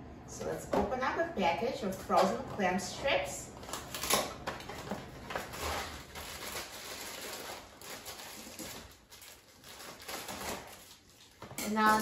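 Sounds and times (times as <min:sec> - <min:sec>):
plastic bag crinkling: 0:03.6 - 0:12.0.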